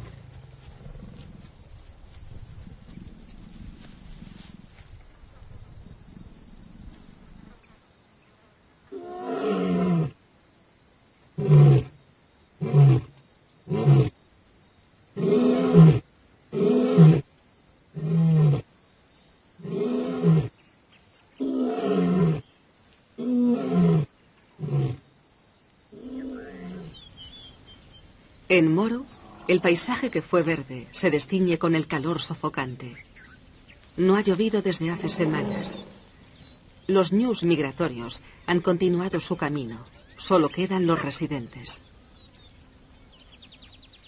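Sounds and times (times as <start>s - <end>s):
lion roaring: 26.0s - 27.0s, 35.0s - 36.1s.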